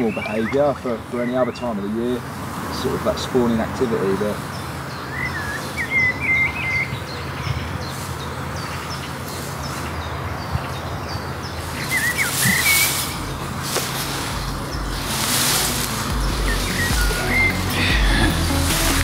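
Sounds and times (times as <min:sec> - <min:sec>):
small bird chirping: 0:04.4 - 0:17.8.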